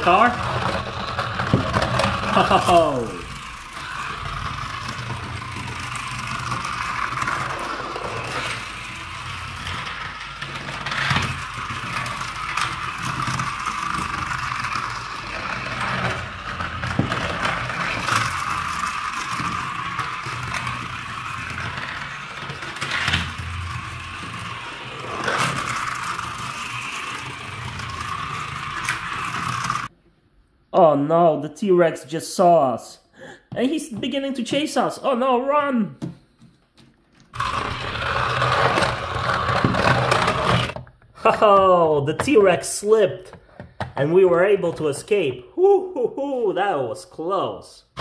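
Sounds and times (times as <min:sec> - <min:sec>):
toy motor whirring: 0:00.0 - 0:29.9, 0:37.3 - 0:40.8
wheels rattling over plastic track: 0:00.0 - 0:29.9, 0:37.3 - 0:42.9.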